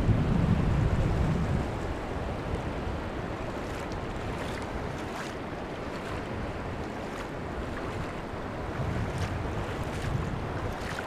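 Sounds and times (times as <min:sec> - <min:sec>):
seawater washing over sand: 0:02.0 - 0:11.0
small water splashes: 0:02.6 - 0:11.0.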